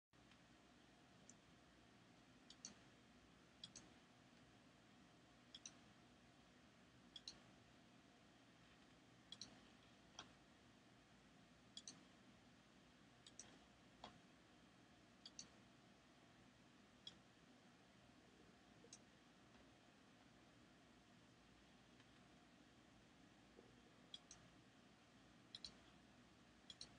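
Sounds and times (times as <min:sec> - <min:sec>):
low steady background noise: 0:00.2 - 0:26.9
computer mouse clicks: 0:01.2 - 0:01.4, 0:02.5 - 0:02.9, 0:03.6 - 0:04.0, 0:05.5 - 0:05.9, 0:07.1 - 0:07.5, 0:08.8 - 0:10.4, 0:11.7 - 0:12.1, 0:13.2 - 0:14.2, 0:15.2 - 0:15.6, 0:17.0 - 0:17.3, 0:18.8 - 0:19.1, 0:24.1 - 0:24.5, 0:25.5 - 0:26.0, 0:26.6 - 0:26.9.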